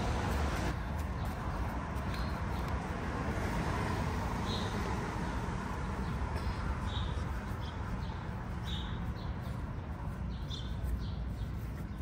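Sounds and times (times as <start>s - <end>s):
bird chirps: 6.0s - 12.0s.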